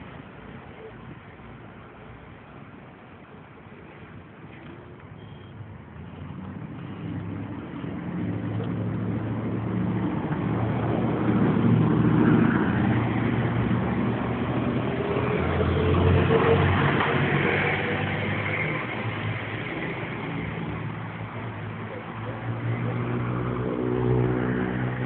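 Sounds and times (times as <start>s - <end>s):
large vehicle passing by: 5.9s - 25.0s.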